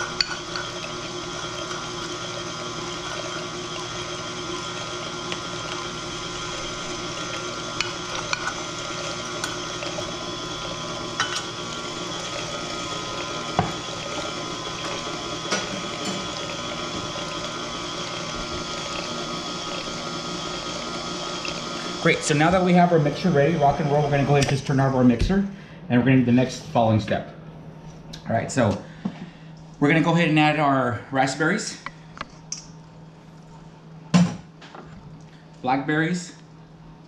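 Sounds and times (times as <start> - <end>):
stand mixer motor humming: 0.0 - 25.2.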